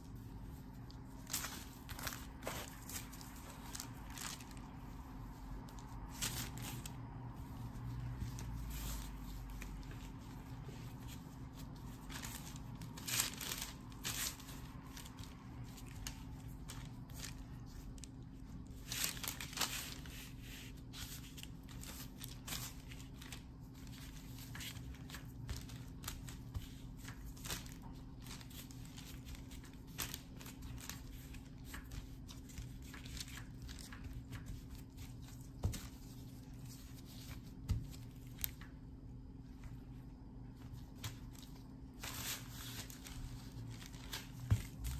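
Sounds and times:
paper and gloves rustling: 0:00.0 - 0:44.9
steady low hum: 0:00.0 - 0:44.9.

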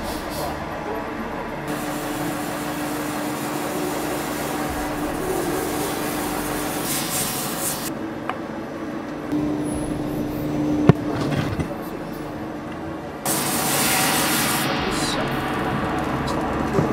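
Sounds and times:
lathe humming: 0:00.0 - 0:16.9
soap rubbing hiss: 0:01.7 - 0:07.9.

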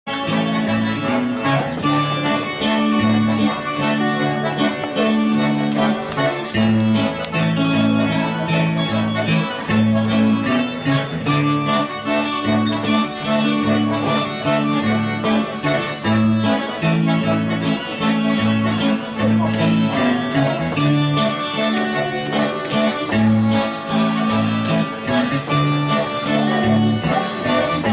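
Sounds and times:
accordion: 0:00.1 - 0:27.9
bass line: 0:00.1 - 0:27.9
electric guitar: 0:00.1 - 0:27.9
live band dance tune: 0:00.1 - 0:27.9.

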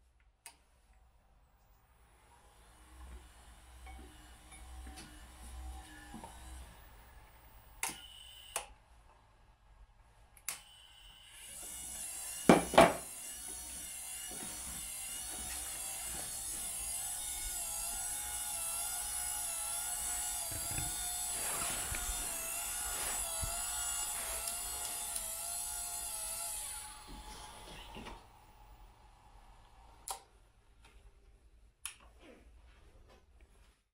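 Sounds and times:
electric motor whining: 0:10.8 - 0:28.8.

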